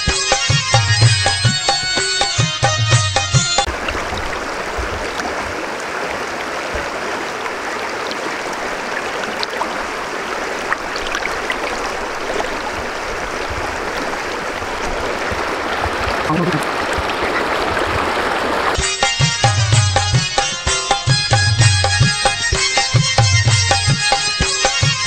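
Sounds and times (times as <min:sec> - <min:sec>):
river water rushing over stones: 0:03.7 - 0:18.8.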